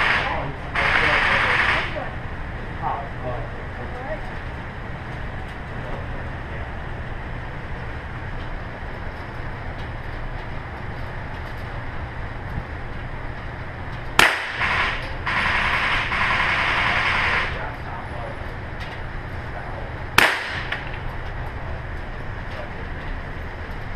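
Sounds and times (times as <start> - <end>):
loud noise burst: 0.0 - 2.2, 14.2 - 17.8
low background hum: 0.0 - 23.9
handgun shot: 14.2 - 15.0, 20.2 - 20.8.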